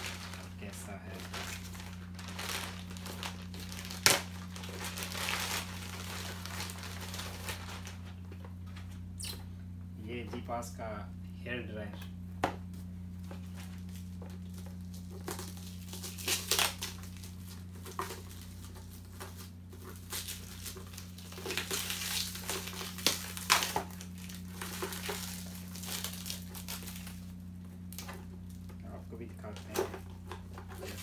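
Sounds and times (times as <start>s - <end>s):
plastic wrapping crinkling and tearing: 0.0s - 8.3s, 13.2s - 31.0s.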